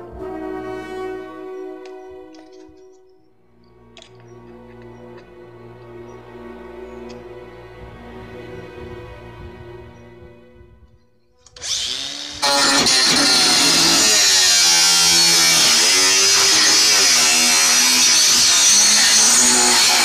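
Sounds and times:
angle grinder cutting metal sheet: 11.4s - 20.0s.

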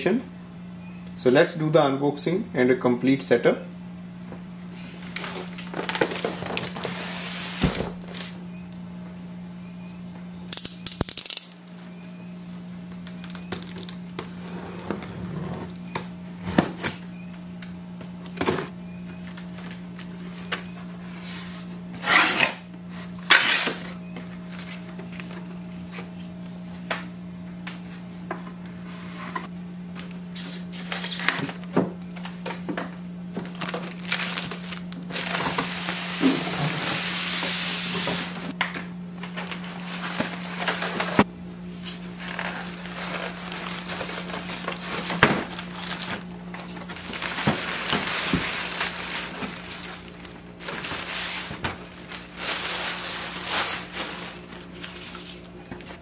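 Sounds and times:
steady low hum: 0.0s - 56.0s
plastic and paper rustling: 4.8s - 8.4s, 33.3s - 36.9s, 39.2s - 56.0s.

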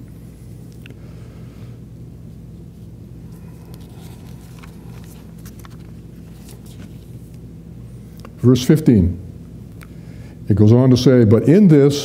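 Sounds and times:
low hum: 0.0s - 10.4s
soft rustles: 2.4s - 7.4s.

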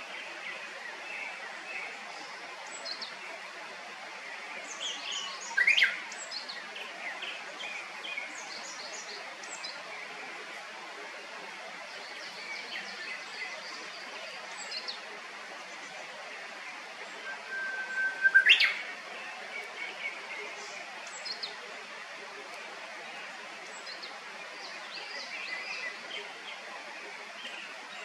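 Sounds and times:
background hiss: 0.0s - 28.0s
birds chirping: 17.0s - 21.6s
loud rising bird call: 17.2s - 18.9s.

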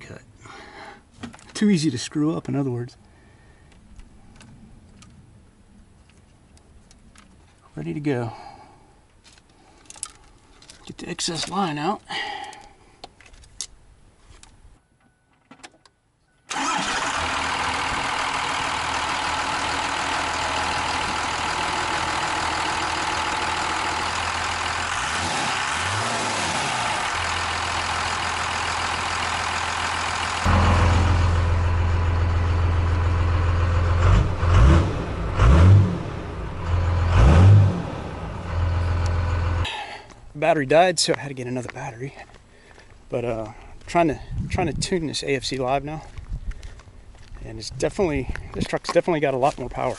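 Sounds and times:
engine drone inside truck cab: 15.8s - 40.3s
diesel engine clatter: 16.5s - 39.7s.

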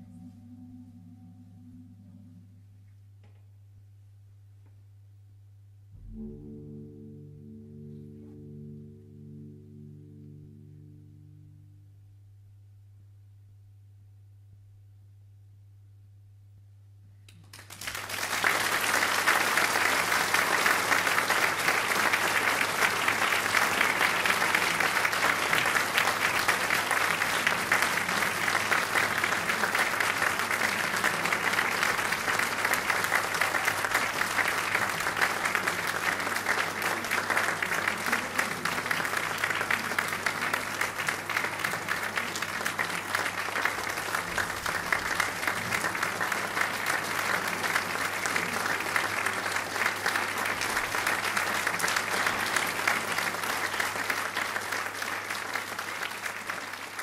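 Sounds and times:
audience applause: 17.3s - 57.0s.

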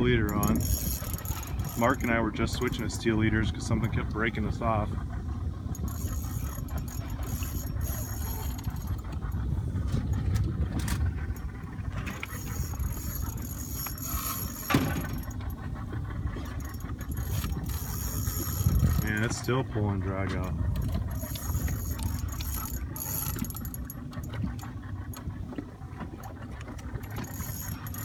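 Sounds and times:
fishing reel drag buzzing: 0.0s - 4.0s, 5.7s - 9.1s, 10.8s - 15.5s, 16.4s - 19.4s, 20.8s - 24.4s, 27.1s - 28.0s
low rumble: 0.0s - 28.0s.

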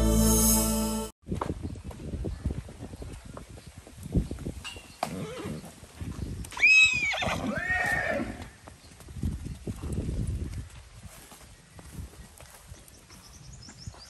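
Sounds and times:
hoofbeats on dirt: 1.3s - 14.0s
horse whinnying: 6.6s - 8.4s.

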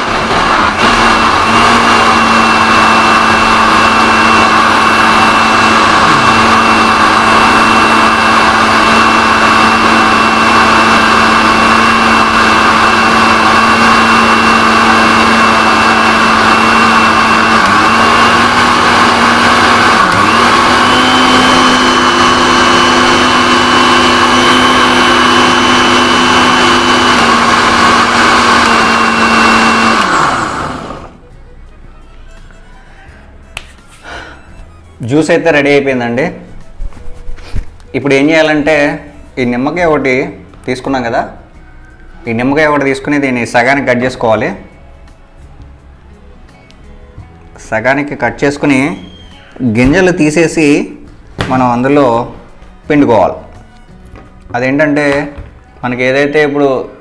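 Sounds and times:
mixer grinder motor whining: 0.0s - 31.2s.

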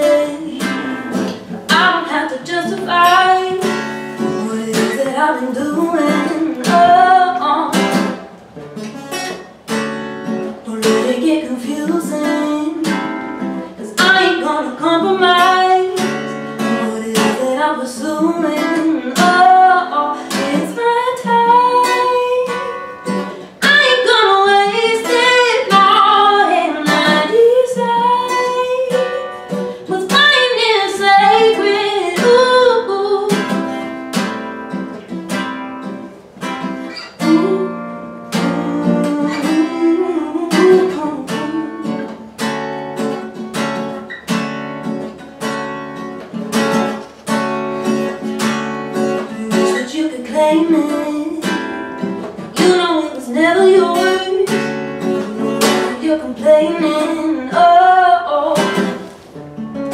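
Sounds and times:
woman singing: 0.0s - 8.2s, 10.4s - 34.3s, 36.8s - 42.4s, 49.0s - 59.1s
strummed acoustic guitar: 0.0s - 59.9s.

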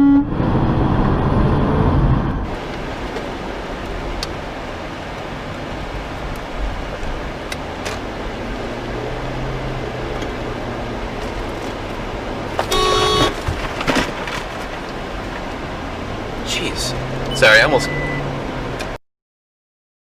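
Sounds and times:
car horn honking: 0.0s - 0.3s, 12.6s - 13.4s
car road and engine noise: 0.0s - 19.0s.

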